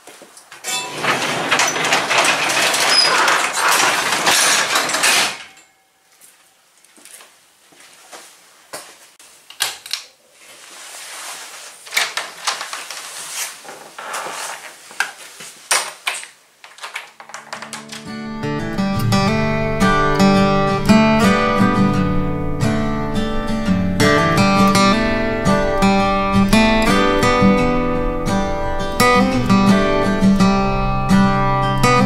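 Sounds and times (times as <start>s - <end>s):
garage door rollers rattling: 0.6s - 5.7s, 16.1s - 19.4s
clicks and knocks: 0.6s - 5.8s, 15.0s - 18.2s.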